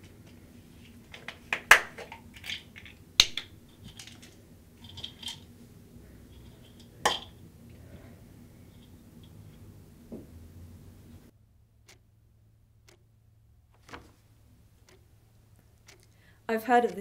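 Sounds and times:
faint low hum: 0.0s - 17.0s
sharp clicks: 12.8s - 13.1s, 14.8s - 15.0s, 15.8s - 16.2s.

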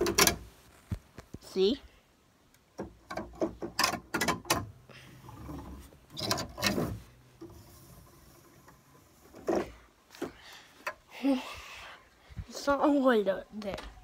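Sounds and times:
sharp clicks and knocks: 0.0s - 1.4s, 2.5s - 4.8s
rustling: 0.0s - 2.0s, 4.9s - 10.9s.

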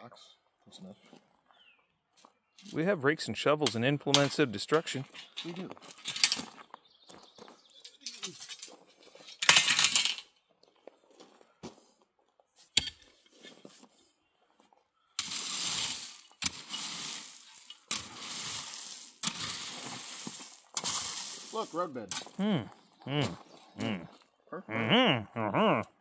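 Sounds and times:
hand tools scraping stones: 3.6s - 6.7s, 7.8s - 10.3s, 12.6s - 13.9s, 15.2s - 22.4s.

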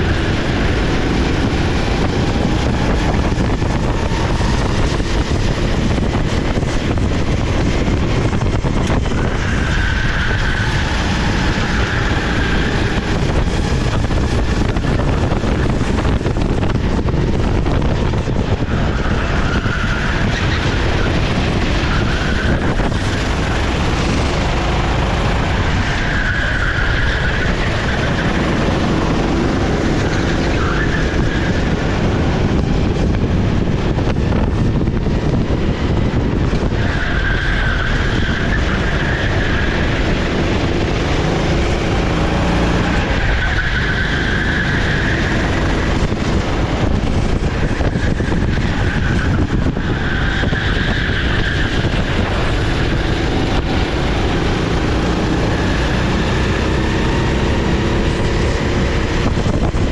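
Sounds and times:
kart engine running hard: 0.0s - 59.9s
tyre squeal: 8.8s - 13.9s, 18.6s - 32.0s, 35.9s - 41.4s, 42.2s - 46.2s, 46.8s - 57.1s.

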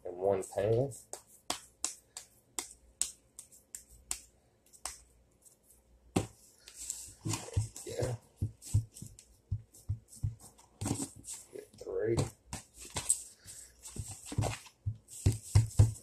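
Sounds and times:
hands slapping ground beef: 1.0s - 5.1s, 13.8s - 16.0s.

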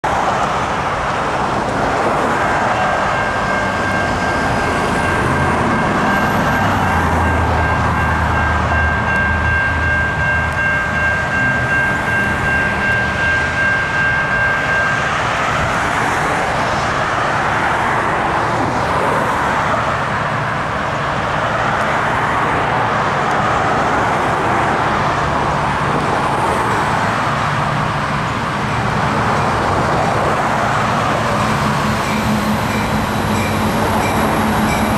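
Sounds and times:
freight train rumble: 0.0s - 34.9s
steady high tone: 2.3s - 17.2s, 27.8s - 34.9s.

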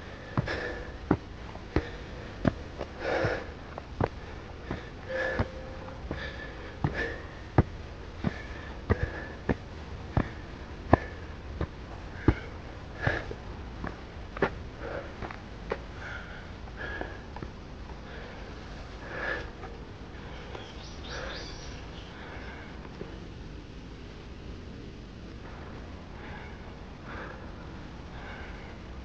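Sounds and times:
footsteps on leafy dirt path: 0.0s - 15.8s.

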